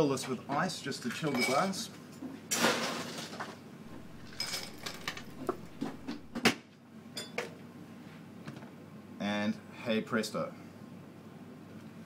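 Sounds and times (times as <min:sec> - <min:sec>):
ice cubes clinking against glass: 0:03.9 - 0:06.3
ice clattering: 0:03.9 - 0:06.4.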